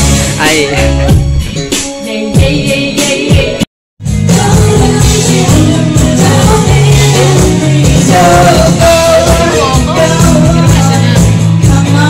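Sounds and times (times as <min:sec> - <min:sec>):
loud backing track: 0:00.0 - 0:12.0
woman singing into a microphone: 0:02.0 - 0:03.6, 0:04.3 - 0:12.0.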